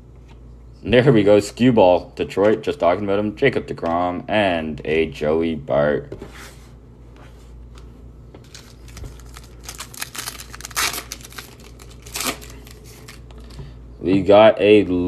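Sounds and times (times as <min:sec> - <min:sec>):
foil wrapper tearing and crinkling: 0:08.4 - 0:13.3.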